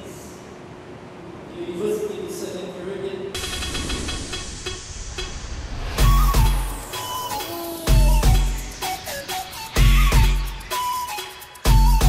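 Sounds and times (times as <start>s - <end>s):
background music with a beat: 3.4s - 12.0s
deep bass hit: 5.5s - 8.8s.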